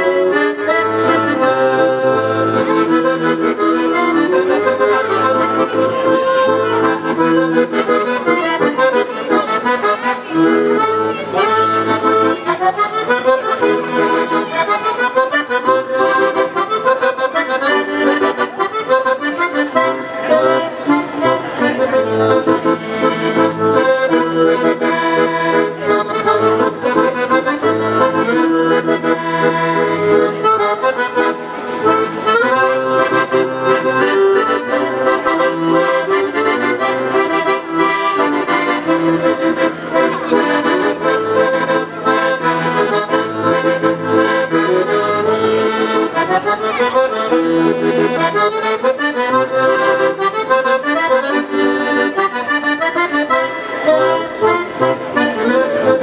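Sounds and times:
accordion melody: 0:00.0 - 0:56.0.

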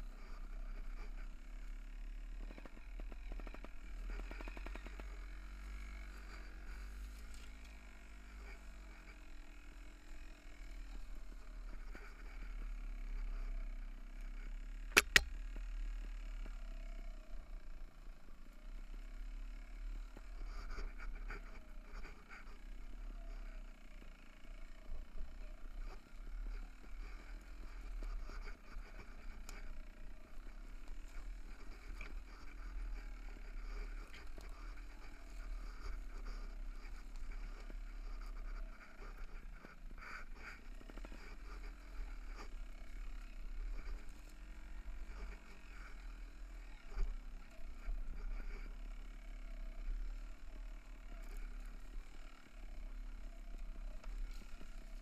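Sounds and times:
faint low hum: 0:00.0 - 0:55.0
wind and tyres rolling rumble: 0:00.0 - 0:55.0
bike knocking and rattling on stones: 0:02.4 - 0:05.2.

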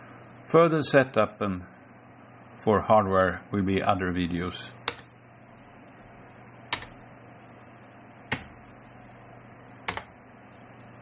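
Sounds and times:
steady low hum and hiss: 0:00.0 - 0:11.0
computer keyboard keystrokes: 0:04.8 - 0:05.1, 0:06.7 - 0:07.0, 0:08.3 - 0:08.6, 0:09.8 - 0:10.1.

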